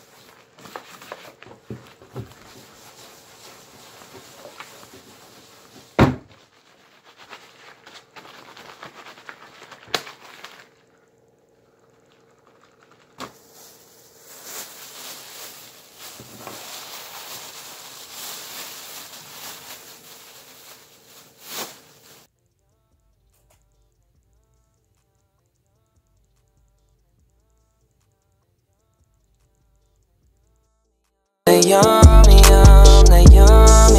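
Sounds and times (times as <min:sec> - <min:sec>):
cloth scrubbing table: 0:00.0 - 0:09.3.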